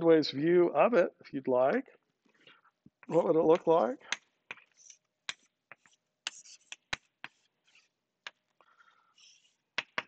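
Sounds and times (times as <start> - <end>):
chalk tapping on blackboard: 3.1 - 8.4, 9.2 - 10.0
chalk scratching strokes: 4.6 - 8.0, 9.1 - 9.8.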